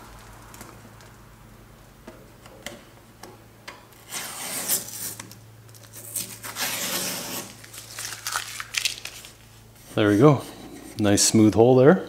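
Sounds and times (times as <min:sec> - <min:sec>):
rubbing and scraping strokes: 0:06.0 - 0:08.0.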